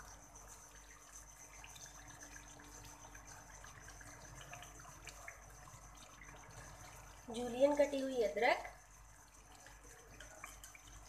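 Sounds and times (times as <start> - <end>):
food sizzling and bubbling in pan: 0.0 - 11.0.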